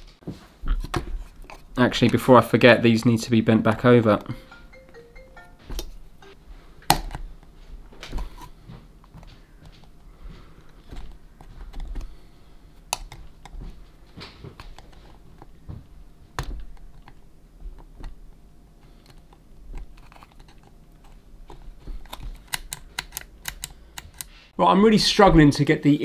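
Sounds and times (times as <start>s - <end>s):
small parts clicking and tapping: 16.4s - 24.3s.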